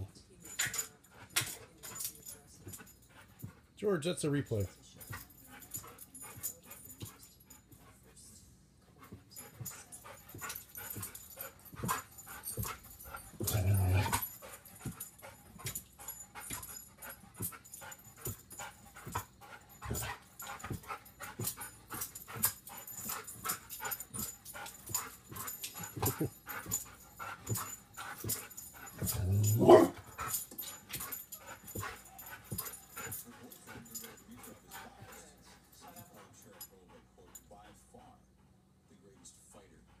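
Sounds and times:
dog breathing: 9.0 - 40.0
excited dog vocalizing: 11.9 - 14.3, 28.8 - 30.3.

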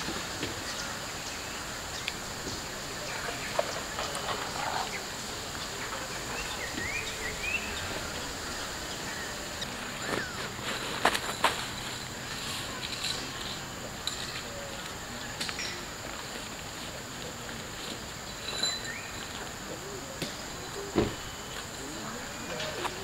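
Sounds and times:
steady high hiss: 0.0 - 23.0
bird chirps: 0.6 - 10.6, 18.3 - 19.4.

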